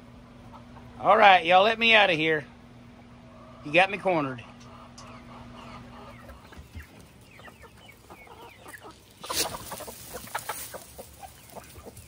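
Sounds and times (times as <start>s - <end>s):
chickens clucking and chirping: 0.0s - 12.0s.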